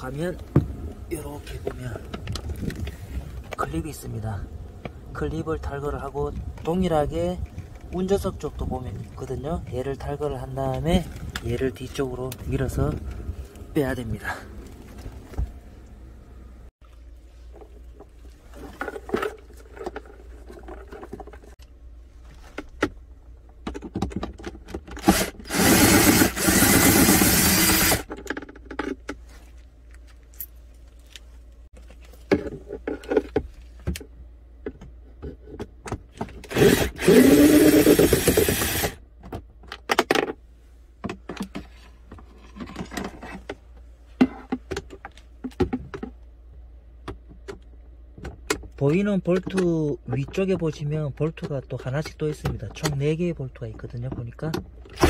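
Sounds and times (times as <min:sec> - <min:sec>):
tools and plastic trim rattling: 0:18.5 - 0:21.7, 0:22.5 - 0:29.2, 0:41.0 - 0:46.2
cordless drill whining: 0:25.0 - 0:28.1, 0:36.5 - 0:39.0.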